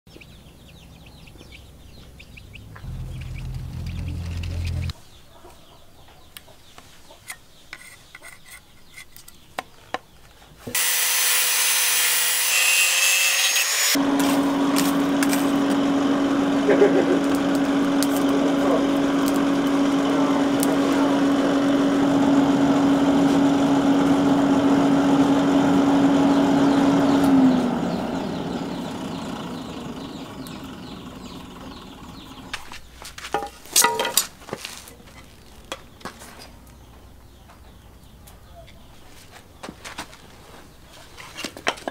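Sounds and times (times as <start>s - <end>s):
air blower humming: 2.7s - 4.9s, 10.8s - 12.6s, 13.9s - 32.6s.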